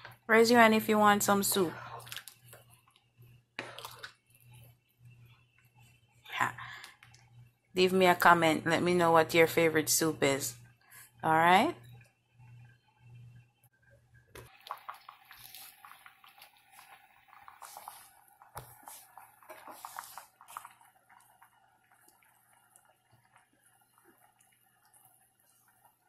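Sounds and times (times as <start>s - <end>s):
soup simmering and bubbling: 0.0s - 6.2s, 11.8s - 26.0s
ladle moving through liquid: 1.5s - 3.0s, 3.6s - 4.7s, 14.4s - 26.0s.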